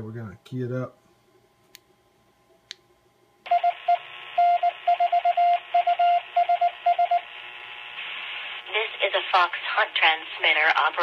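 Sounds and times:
morse code beeps: 3.5 - 7.2
radio speaker hiss: 7.9 - 11.0.

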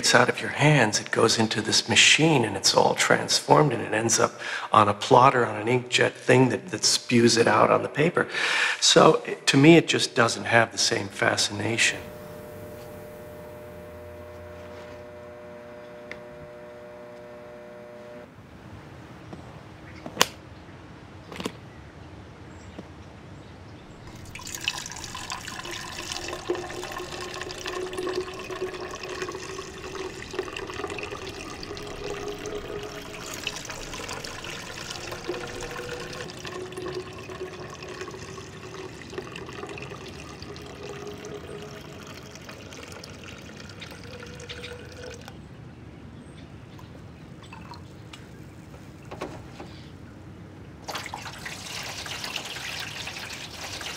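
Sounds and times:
liquid pouring into plastic cylinder: 24.0 - 45.4, 50.8 - 53.9.

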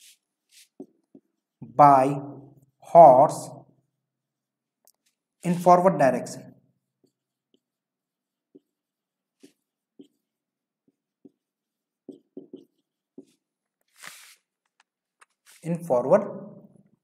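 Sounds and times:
marker pen writing on whiteboard: 0.0 - 17.0.

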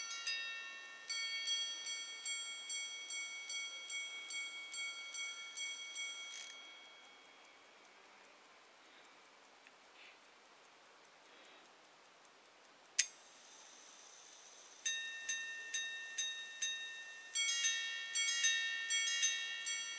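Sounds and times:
faint steady whir: 0.0 - 19.9
watch ticking faintly: 0.0 - 19.9
sharp click: 12.6 - 13.2.

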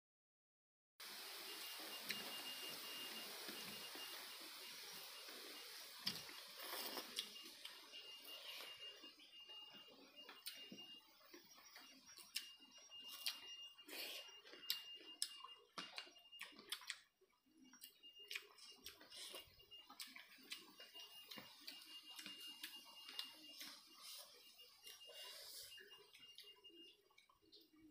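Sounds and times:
faint high steady tone: 1.0 - 27.9
chewing mouth smacks: 14.6 - 17.1.

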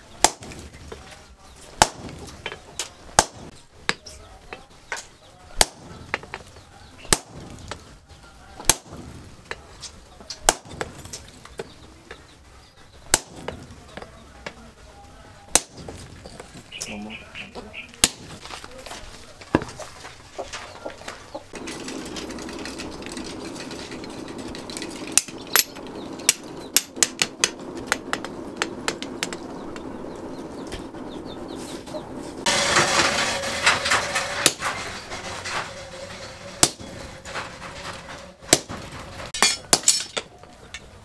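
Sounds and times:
hammer striking steel on anvil: 1.8 - 4.0, 7.0 - 7.8, 13.1 - 13.6, 15.5 - 16.0, 18.0 - 18.4, 23.7 - 29.6, 36.6 - 37.0
steady low hum: 21.5 - 35.6.

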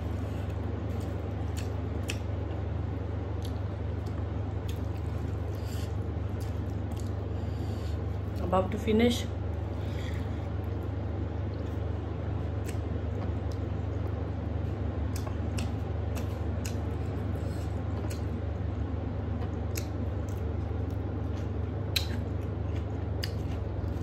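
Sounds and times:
steady low hum: 0.0 - 24.0
wet chewing and squishing: 0.9 - 2.4, 3.4 - 7.2, 15.1 - 24.0.

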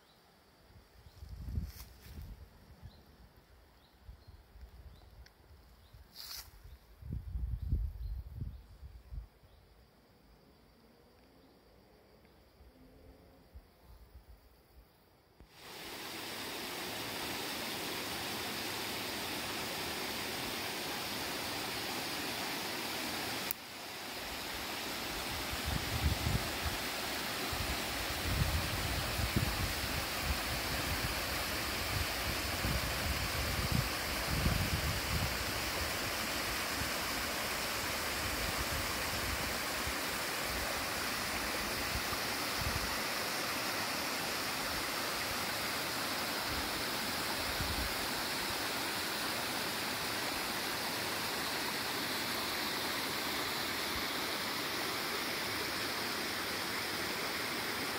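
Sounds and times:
flowing stream water: 15.5 - 57.9.

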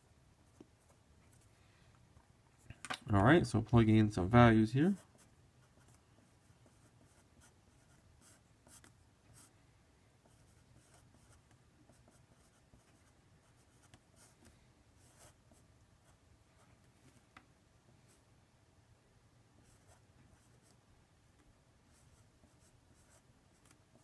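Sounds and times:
marker scratching on paper: 5.0 - 9.5, 10.2 - 14.4, 15.0 - 16.2, 21.9 - 24.0.

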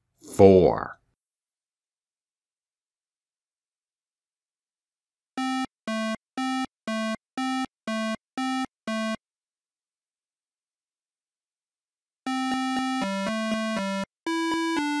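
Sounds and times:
hi-lo ambulance siren: 12.3 - 15.0.

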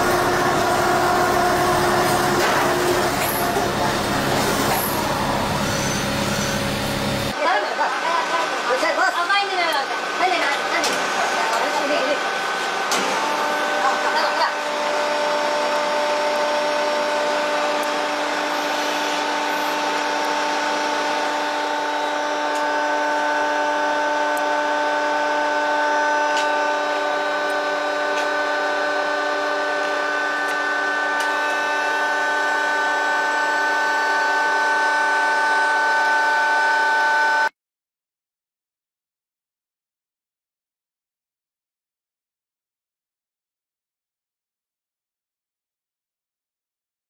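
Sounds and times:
steady machine whine: 0.0 - 37.6.

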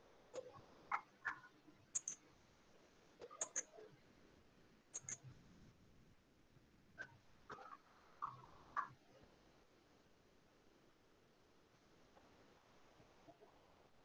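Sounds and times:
computer mouse clicks: 0.4 - 2.2, 3.2 - 3.8, 5.0 - 5.3.

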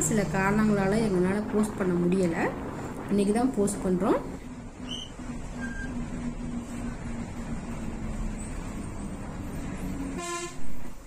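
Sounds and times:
bus engine and road noise: 0.0 - 11.0
bus horn: 10.1 - 11.0.

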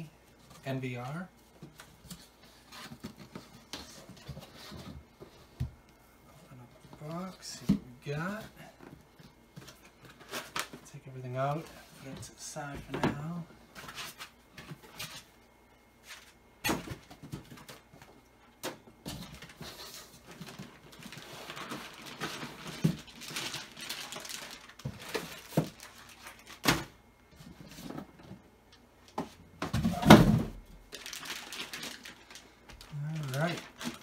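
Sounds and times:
foam packing pieces knocking: 18.7 - 27.0, 29.6 - 34.0
plastic bag crinkling: 20.2 - 26.6, 30.8 - 34.0.

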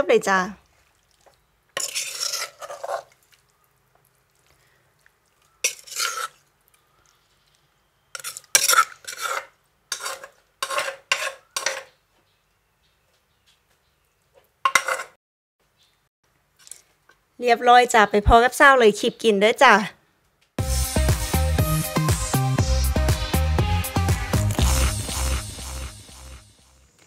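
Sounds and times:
spoon scraping a dish: 1.8 - 3.2, 5.6 - 6.4, 8.1 - 12.0, 14.7 - 15.2.

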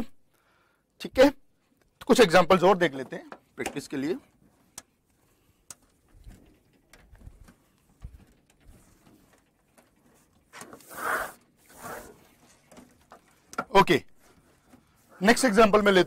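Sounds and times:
eraser rubbing on whiteboard: 10.6 - 12.4.

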